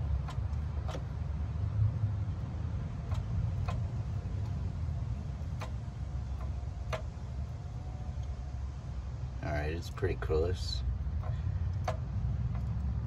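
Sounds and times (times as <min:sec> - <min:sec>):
crankshaft clicking: 0:00.0 - 0:01.3, 0:03.0 - 0:07.6, 0:11.1 - 0:13.0
low steady rumble: 0:00.0 - 0:13.0.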